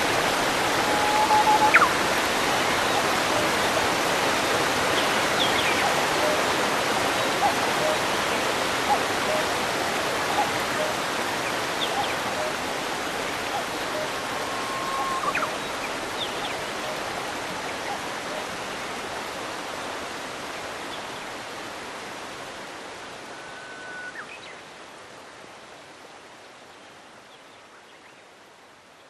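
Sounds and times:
waterfall rushing: 0.0 - 25.6
high whistles: 0.8 - 2.0.

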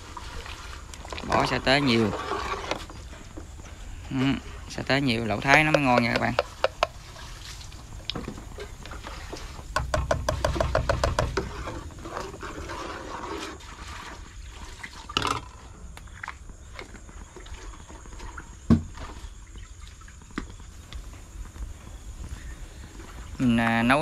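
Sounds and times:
broth liquid sounds: 0.0 - 18.6
sharp knocks: 9.7 - 11.8.

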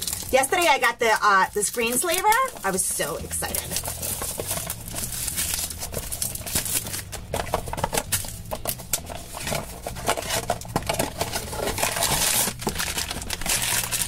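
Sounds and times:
plastic wrap crinkling: 0.0 - 14.0
cardboard flap scraping and tapping: 3.5 - 13.8.

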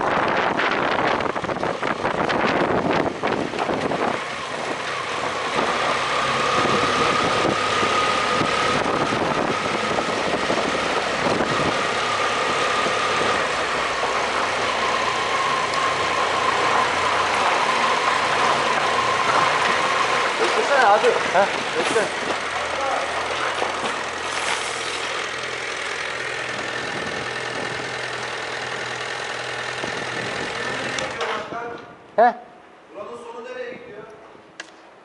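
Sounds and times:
wind buffeting on microphone: 0.0 - 14.7, 26.5 - 28.0, 29.8 - 32.1
motorcycle engine running: 0.0 - 31.2.

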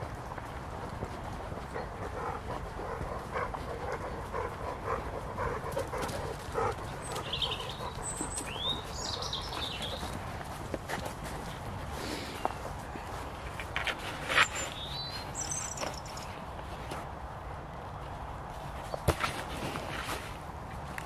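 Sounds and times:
bird chirps: 7.0 - 10.2, 14.3 - 16.4.

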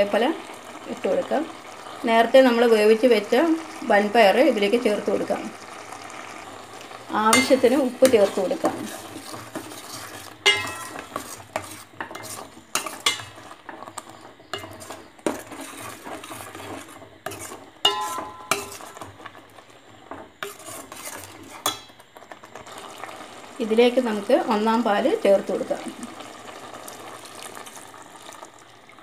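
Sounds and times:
metal spoon scraping a pot: 7.3 - 19.4, 20.1 - 22.0.

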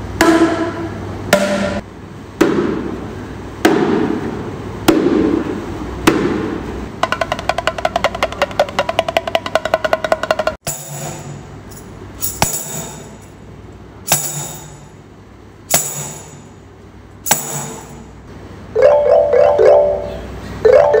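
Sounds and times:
mallet percussion notes: 18.8 - 21.0
xylophone-like note runs: 18.8 - 21.0.

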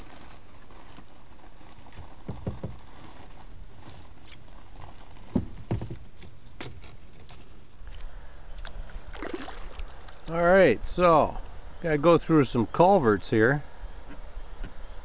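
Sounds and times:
faint steady hiss: 0.0 - 15.0
kayak paddle knocks and taps: 2.2 - 2.8, 5.3 - 6.8.

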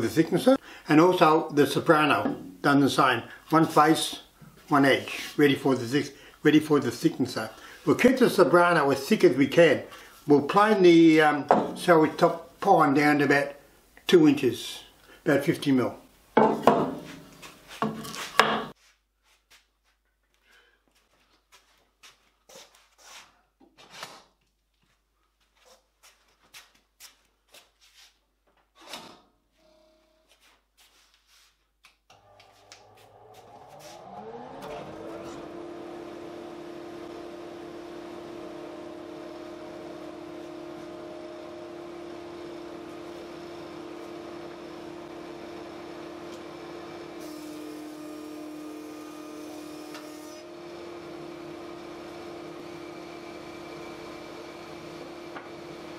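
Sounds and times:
knocks from handling boards: 16.4 - 17.2, 17.8 - 18.7
thickness planer motor running: 32.1 - 55.9
board hissing through cutter: 47.0 - 50.5.

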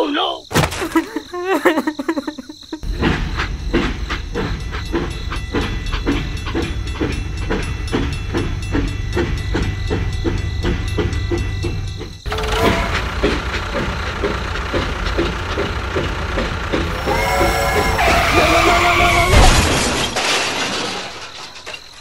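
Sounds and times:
machine chugging rhythmically: 2.8 - 19.2.

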